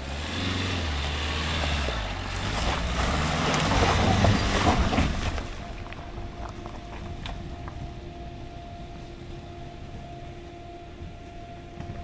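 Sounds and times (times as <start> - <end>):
car engine running low: 0.0 - 12.0
tyres crunching over gravel: 0.5 - 9.2.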